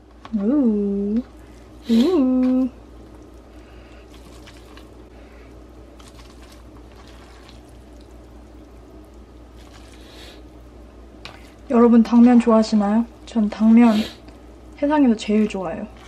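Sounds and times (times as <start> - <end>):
low steady hum: 0.0 - 16.0
wet noodle squelching: 0.0 - 16.0.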